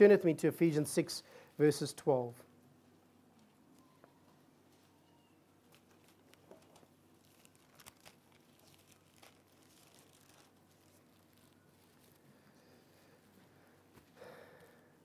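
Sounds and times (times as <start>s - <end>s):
paper pages rustling: 5.6s - 12.4s.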